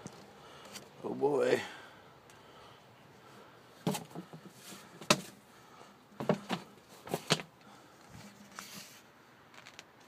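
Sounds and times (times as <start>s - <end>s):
sliding rustling scrapes: 8.1s - 9.8s.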